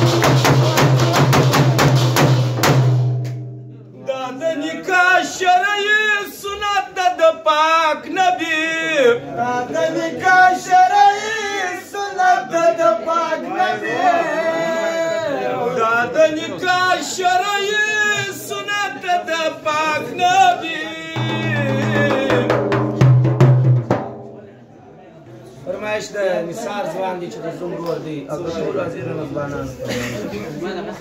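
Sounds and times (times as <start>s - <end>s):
quick drum strikes: 0.0s - 3.7s, 21.2s - 24.6s
man singing in high voice: 4.0s - 22.9s.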